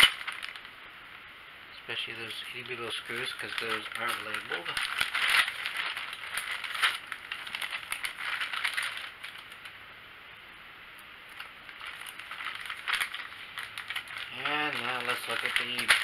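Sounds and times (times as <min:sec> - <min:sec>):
plastic bag crinkling: 0:00.0 - 0:00.8, 0:01.9 - 0:09.8, 0:11.3 - 0:16.0.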